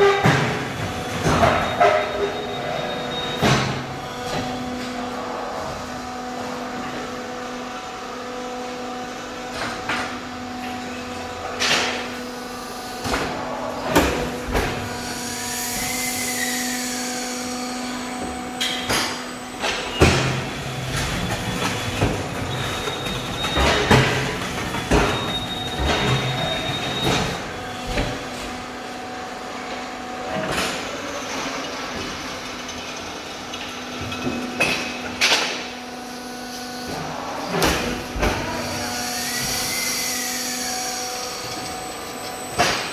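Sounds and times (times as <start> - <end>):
brick press humming: 0.0 - 42.9
machine whine: 0.6 - 42.9.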